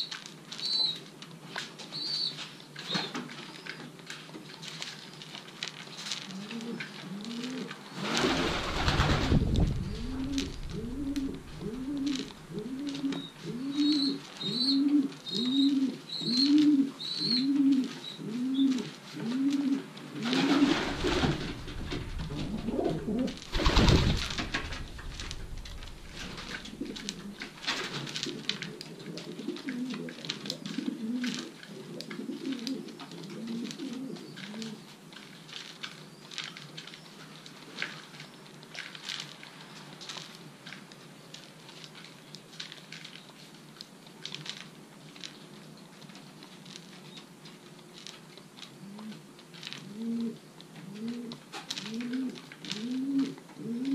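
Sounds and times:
pigeons cooing: 6.3s - 34.9s, 49.8s - 53.9s
rushes of noise: 8.0s - 12.6s, 20.6s - 27.6s.

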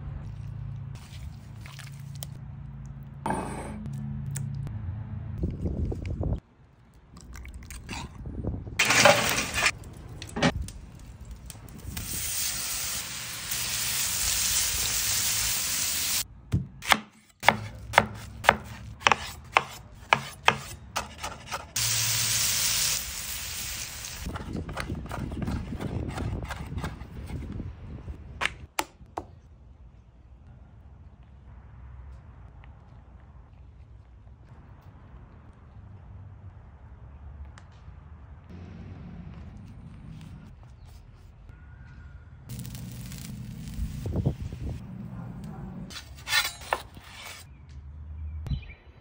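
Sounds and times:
chicken sizzling on a griddle: 12.0s - 16.2s, 21.8s - 24.3s, 42.5s - 44.2s
knife chopping on cutting board: 16.6s - 21.7s.

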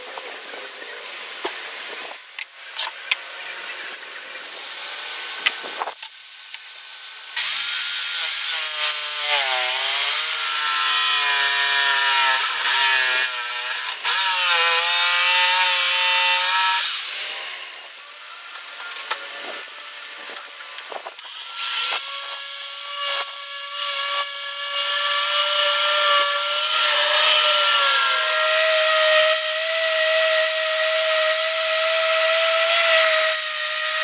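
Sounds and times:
jigsaw sawing wood: 7.4s - 17.4s, 21.2s - 34.0s.

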